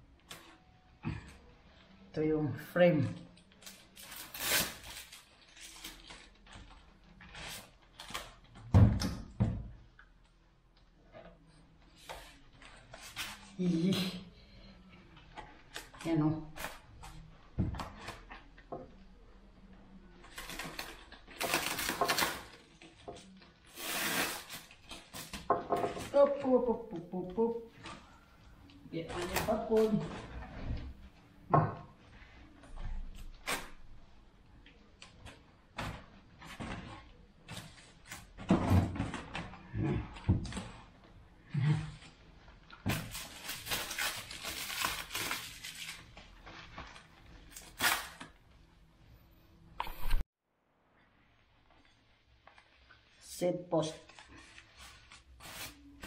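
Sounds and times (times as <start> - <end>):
plastic wrap crinkling and tearing: 3.3 - 8.6, 20.2 - 25.5, 42.7 - 48.4.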